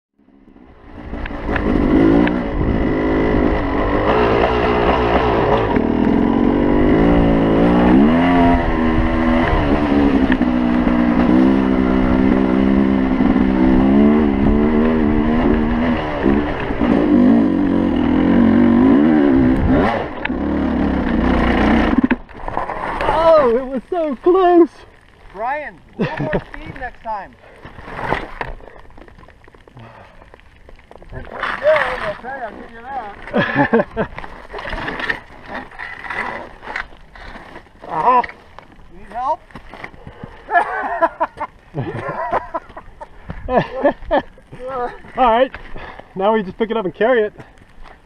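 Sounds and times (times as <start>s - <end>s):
dirt bike engine revving: 0.6s - 22.3s, 31.2s - 36.6s.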